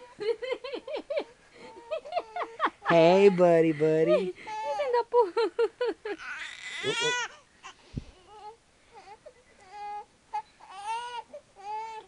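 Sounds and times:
baby crying: 6.2 - 12.0
baby whimpering: 6.2 - 12.0.

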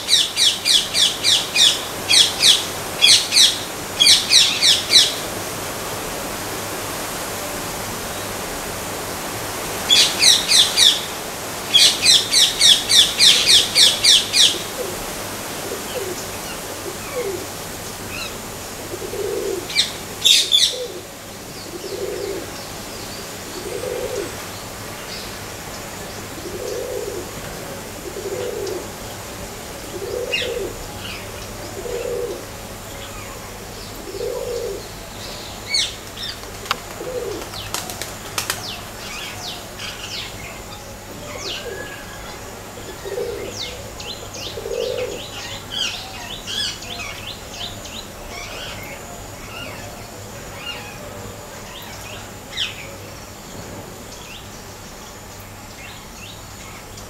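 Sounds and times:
low cooing bird: 11.7 - 22.6, 23.4 - 24.5, 26.2 - 40.6, 41.2 - 53.0.

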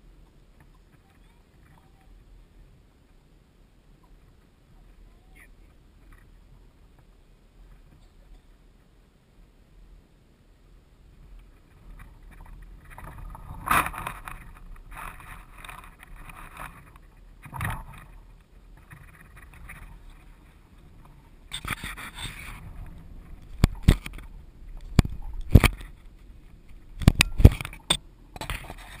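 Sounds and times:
scraping: 11.3 - 29.0
sharp knocks and clicks: 23.2 - 26.0, 26.7 - 28.6.

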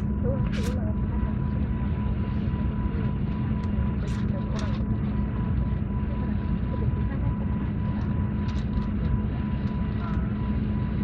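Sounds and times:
airliner cabin rumble: 0.0 - 11.0
low steady hum: 0.0 - 11.0.

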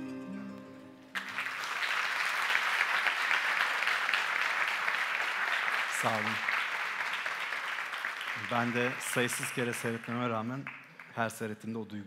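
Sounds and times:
plucked string music: 0.0 - 1.2
audience applause: 1.2 - 11.5.

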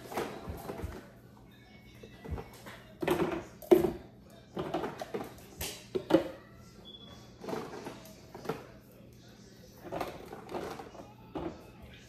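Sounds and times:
plastic bottles clattering: 0.0 - 1.2, 2.1 - 6.4, 7.4 - 8.7, 9.8 - 11.7.

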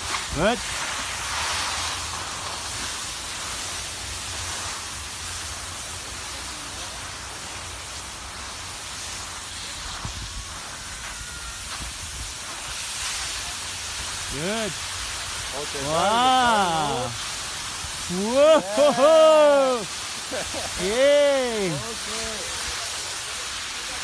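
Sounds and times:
wind buffeting microphone: 9.7 - 12.8.

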